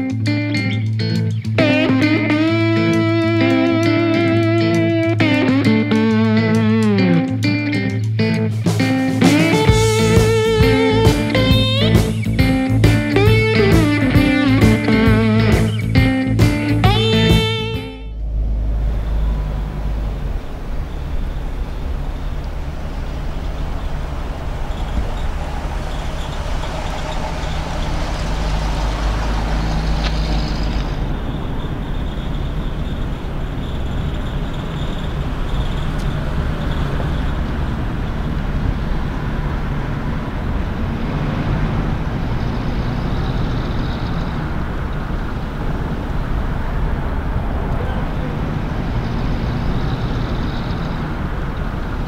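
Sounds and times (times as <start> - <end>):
car engine running: 8.5 - 52.0.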